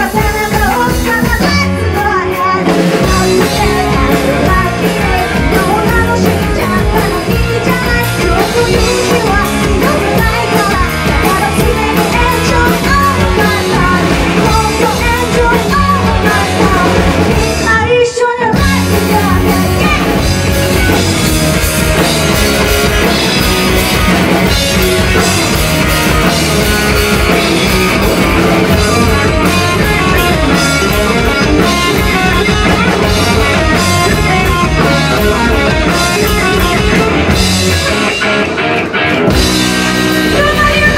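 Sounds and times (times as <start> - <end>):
woman singing: 0.0 - 21.0, 28.2 - 37.4, 40.1 - 40.9
live rock band playing: 0.0 - 40.9.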